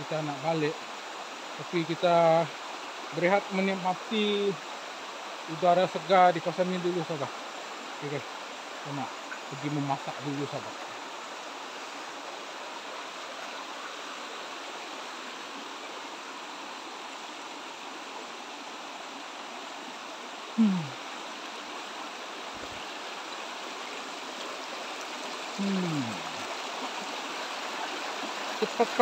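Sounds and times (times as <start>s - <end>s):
stream rushing over stones: 0.0s - 29.0s.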